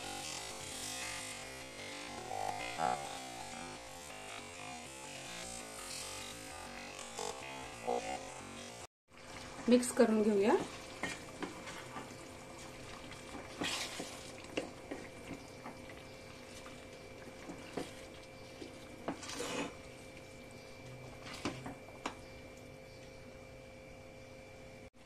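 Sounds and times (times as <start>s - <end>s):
spatula scraping and tapping pan: 10.6s - 12.7s, 13.3s - 16.0s, 17.4s - 19.8s
faint hum: 14.4s - 25.0s.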